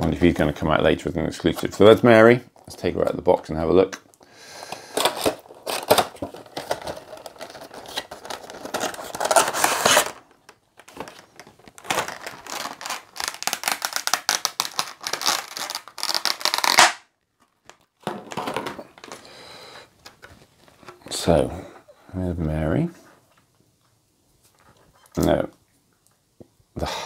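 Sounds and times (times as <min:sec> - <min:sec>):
plastic crinkling: 0:04.6 - 0:19.3, 0:20.0 - 0:21.2
cardboard rustling: 0:05.0 - 0:16.8, 0:17.4 - 0:19.2.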